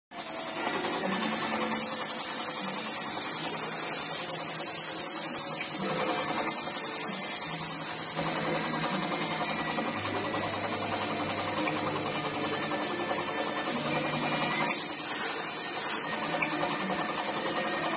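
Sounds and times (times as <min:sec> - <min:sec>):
small motor running: 0:00.2 - 0:17.9
compressed air hiss bursts: 0:14.7 - 0:16.0.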